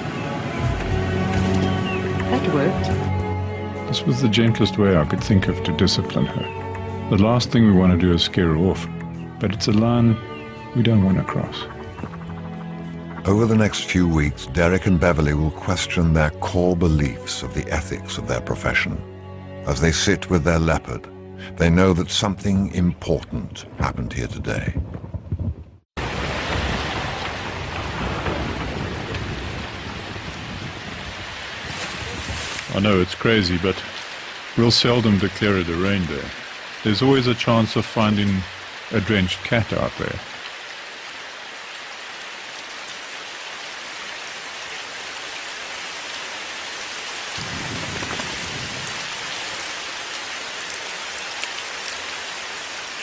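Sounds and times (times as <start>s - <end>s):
heavy rain falling: 0.0s - 18.8s, 26.0s - 53.0s
low rumble of thunder: 24.0s - 32.6s, 47.4s - 49.4s.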